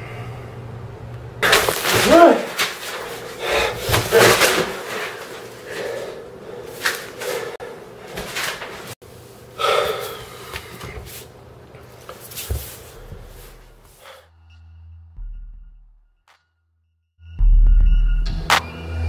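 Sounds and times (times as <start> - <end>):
man gasping for breath: 9.6 - 10.7.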